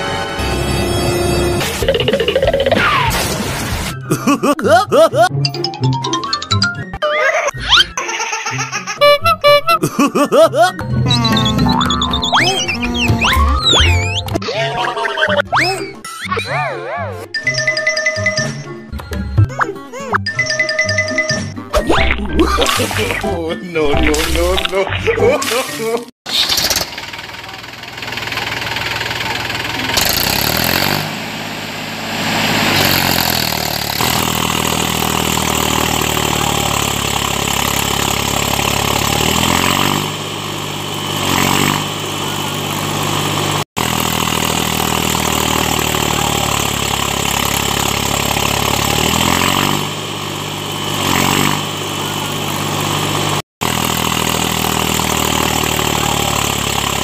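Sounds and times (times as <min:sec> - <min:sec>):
small engine running: 0:26.3 - 0:57.0.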